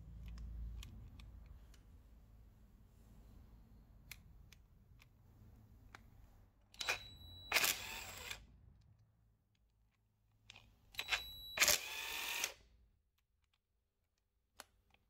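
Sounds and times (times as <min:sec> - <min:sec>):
cordless drill whining: 0:06.8 - 0:08.4, 0:11.0 - 0:12.6.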